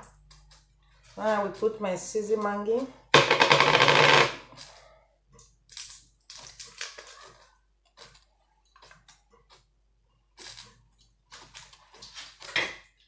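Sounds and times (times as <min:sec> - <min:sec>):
foil wrappers crinkling: 0:05.7 - 0:09.2.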